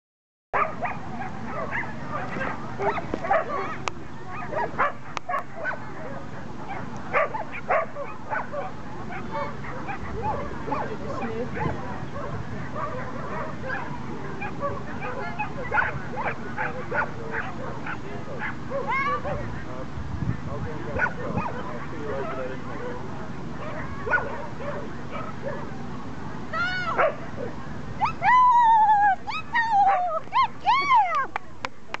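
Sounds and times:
dogs barking and yipping: 0.6s - 19.9s, 20.9s - 23.0s, 23.6s - 25.8s, 26.9s - 31.2s
dog whining and yelping: 28.0s - 30.5s.

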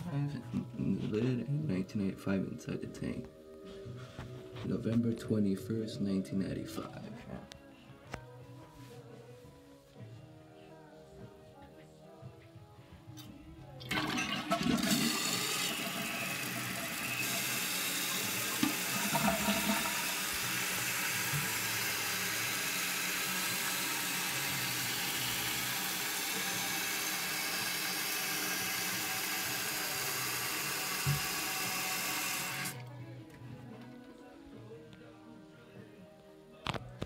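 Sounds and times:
toilet flush water rushing: 13.8s - 32.8s
fill valve hissing: 13.9s - 32.8s.

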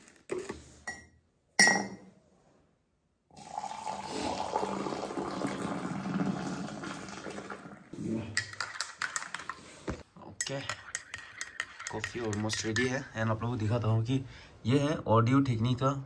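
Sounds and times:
water pouring into mug: 3.3s - 8.0s
spoon clinking against jar: 10.4s - 13.0s.

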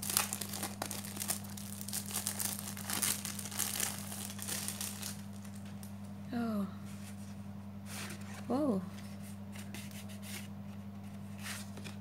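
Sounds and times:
plastic wrapping crinkling: 0.0s - 6.0s.

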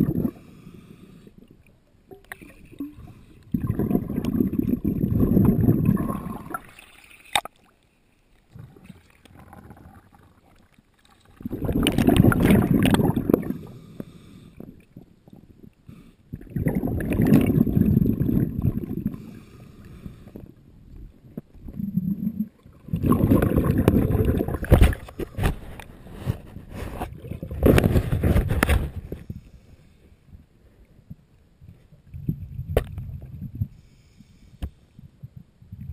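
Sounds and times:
exhaled bubbles underwater: 0.0s - 0.5s, 1.3s - 7.4s, 8.5s - 13.9s, 14.6s - 19.5s, 20.4s - 25.5s, 27.1s - 28.4s
diver inhaling through regulator: 0.1s - 1.4s, 13.3s - 14.7s, 19.0s - 20.5s, 33.7s - 34.8s.

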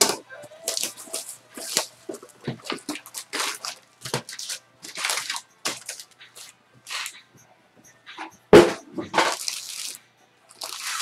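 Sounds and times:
cardboard and wrapping tearing: 0.6s - 7.1s, 9.2s - 11.0s.

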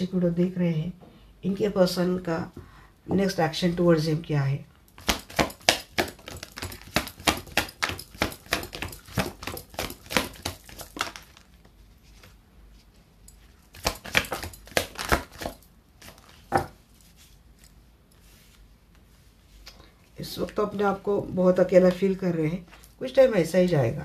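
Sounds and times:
cards being shuffled: 5.0s - 12.4s, 13.7s - 17.4s.

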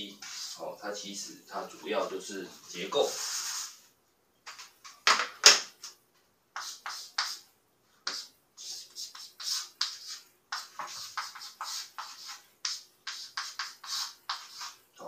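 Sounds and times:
chalk scratching on blackboard: 0.0s - 0.8s, 2.7s - 3.9s, 6.6s - 7.4s, 8.0s - 14.8s.

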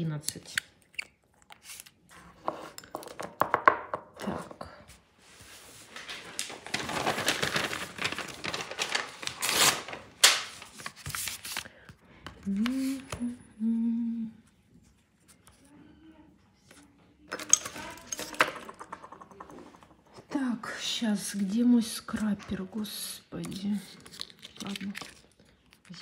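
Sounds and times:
woman humming: 12.4s - 14.5s
small objects rustling and clattering: 17.3s - 20.3s, 23.5s - 26.0s.

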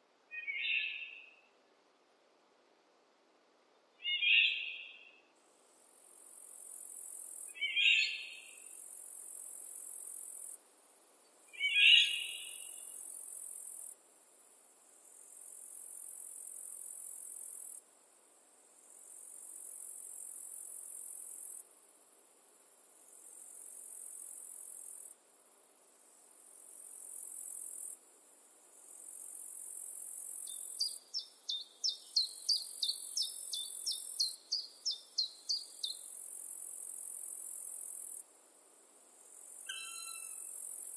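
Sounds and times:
loud bird chirps: 7.6s - 8.5s, 11.6s - 12.8s, 30.5s - 36.0s, 39.7s - 40.5s
insect-like trill: 39.5s - 40.9s.

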